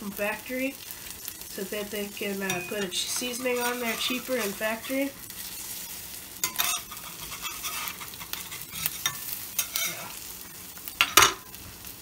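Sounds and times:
eggs sizzling in oil: 0.0s - 12.0s
metal spatula scraping pan: 2.2s - 10.2s.

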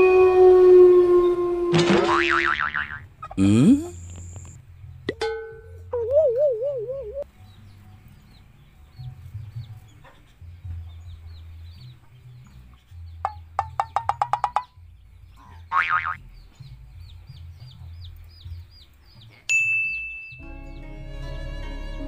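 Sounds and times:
faint high chirps: 19.5s - 20.6s.

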